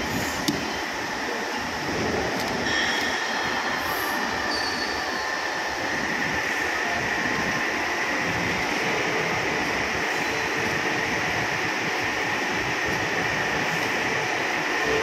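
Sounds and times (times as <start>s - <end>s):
high machine whine: 0.0s - 15.0s
machine hum: 0.0s - 15.0s.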